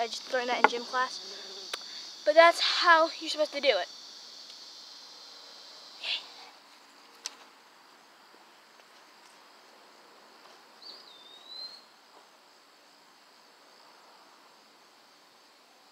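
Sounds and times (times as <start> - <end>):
insect chorus: 0.0 - 15.9
whistled call: 11.0 - 11.9.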